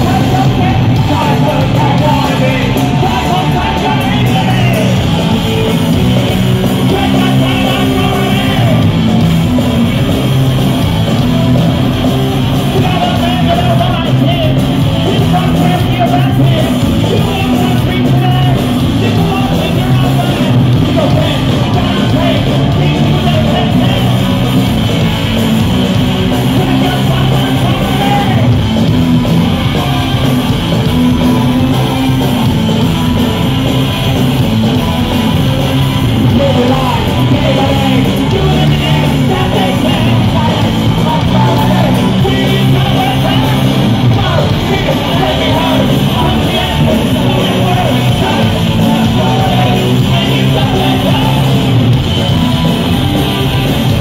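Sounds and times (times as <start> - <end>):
punk rock band playing: 0.0 - 54.0.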